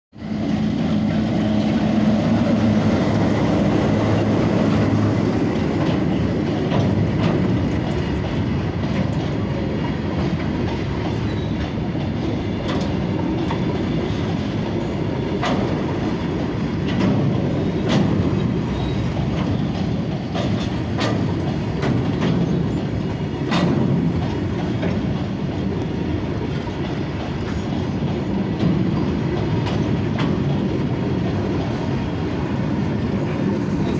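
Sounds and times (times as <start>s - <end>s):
freight train rumbling past: 0.1s - 33.9s
wheels clanking over rail joints: 0.2s - 33.9s.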